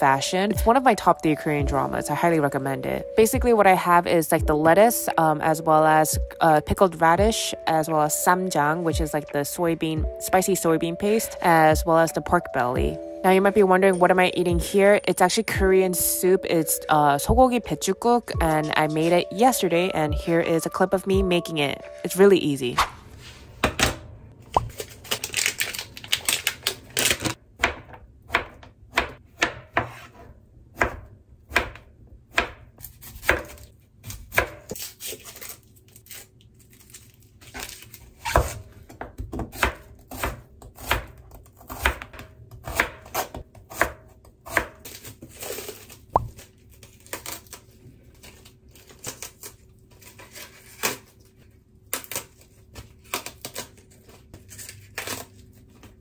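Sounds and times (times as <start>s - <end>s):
knife chopping on plastic board: 27.6s - 30.2s.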